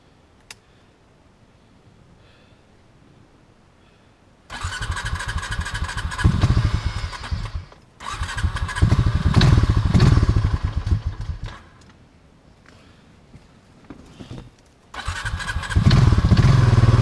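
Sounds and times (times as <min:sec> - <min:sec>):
engine chugging while cranked: 0:04.5 - 0:11.6, 0:15.0 - 0:17.0.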